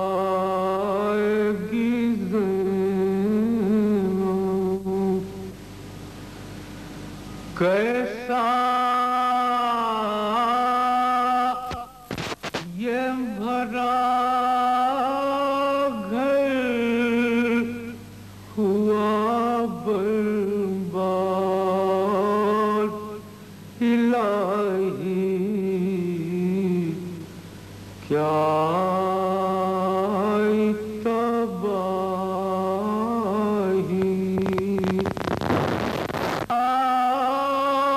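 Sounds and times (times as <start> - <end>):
man chanting a mourning lament: 7.6 - 11.9.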